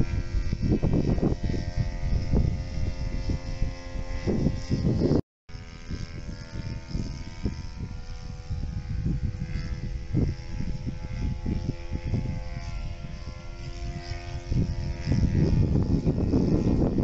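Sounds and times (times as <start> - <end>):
model plane propeller droning: 0.0 - 17.0
wind gusting on microphone: 0.0 - 17.0.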